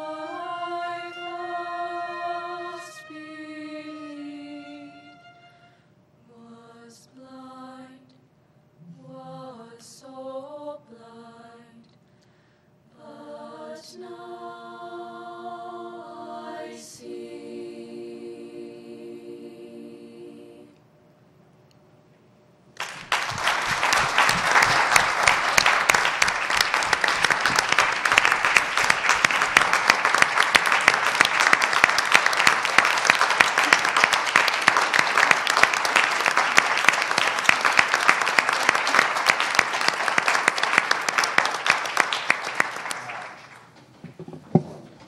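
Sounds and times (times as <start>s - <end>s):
audience applauding: 22.8s - 43.8s.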